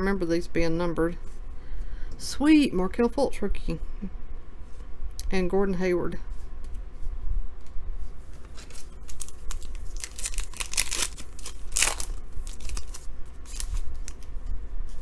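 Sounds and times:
foil wrapper crinkling and tearing: 8.6s - 14.3s.

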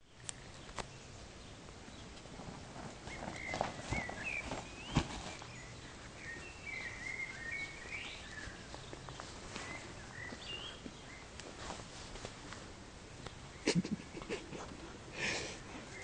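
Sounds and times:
birds singing: 0.1s - 11.4s.

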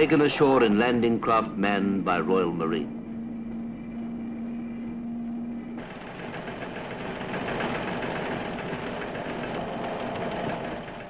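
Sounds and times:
steady low hum: 0.0s - 11.0s
engine running roughly: 5.8s - 11.0s.

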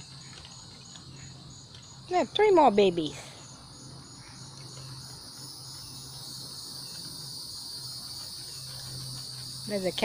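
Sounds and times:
crickets chirping: 0.0s - 10.0s.

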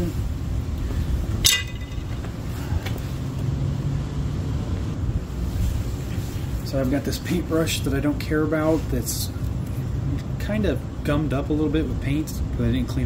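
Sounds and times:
sharp clink: 1.4s - 2.2s.

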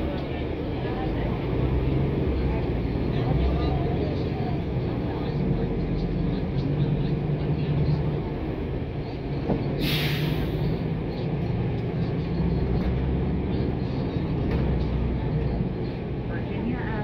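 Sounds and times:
bus engine droning: 0.0s - 17.0s
compressed air hiss: 9.8s - 10.6s.

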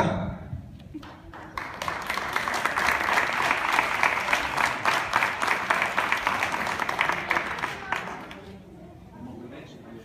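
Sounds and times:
audience applause: 1.0s - 8.6s.

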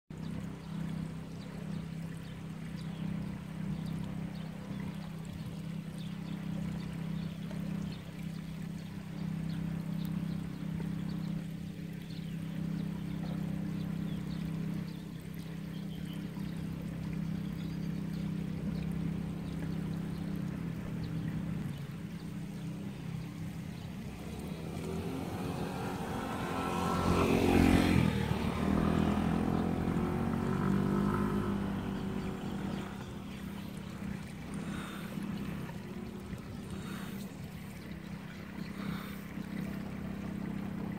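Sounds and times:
low engine hum: 0.0s - 40.9s
vehicle passing close by: 18.6s - 40.9s.

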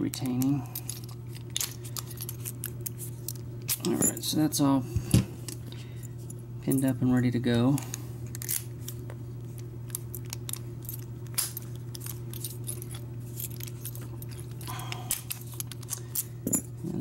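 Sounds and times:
steady low hum: 0.0s - 17.0s
keys jangling against padlock: 10.2s - 16.7s.

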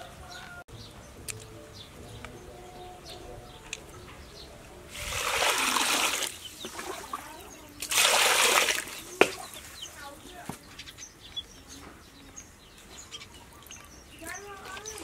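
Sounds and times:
water splashing in plastic basket: 4.9s - 9.7s.

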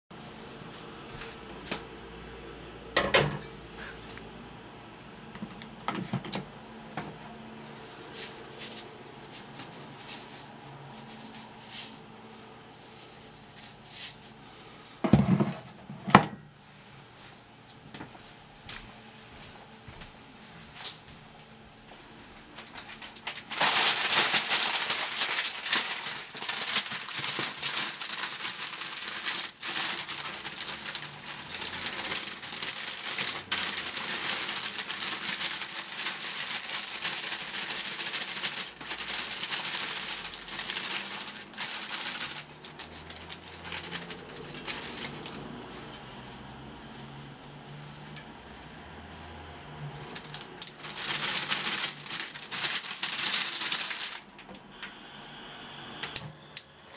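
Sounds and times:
plastic bag crinkling: 7.7s - 14.9s, 22.5s - 54.5s.

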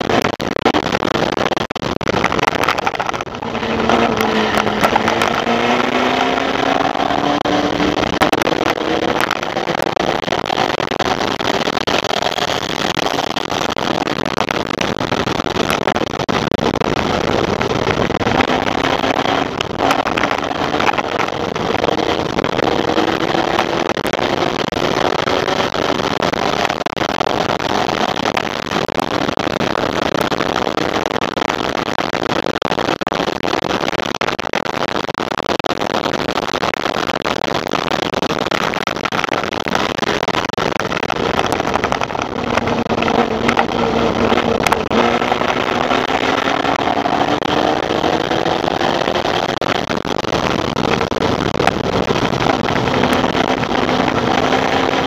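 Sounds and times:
race car engine running hard: 2.5s - 13.8s, 16.9s - 26.8s, 41.2s - 49.5s, 51.9s - 55.0s.

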